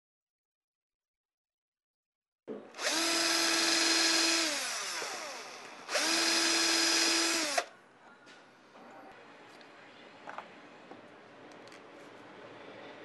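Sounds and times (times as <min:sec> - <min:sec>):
cordless drill drilling into wood: 0:02.8 - 0:07.7.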